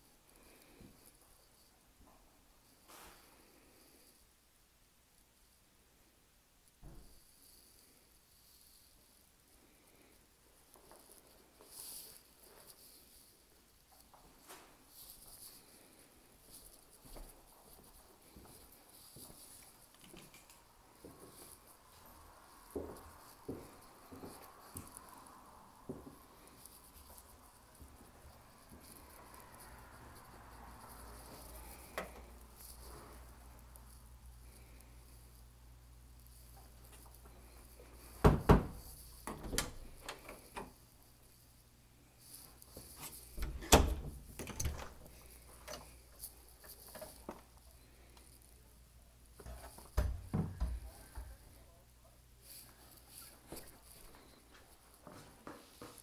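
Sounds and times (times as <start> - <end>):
faint steady hiss: 0.0 - 56.0
footsteps on tile floor: 13.9 - 20.2, 21.0 - 33.3, 49.4 - 51.5, 52.4 - 56.0
footsteps on hard floor: 53.4 - 56.0.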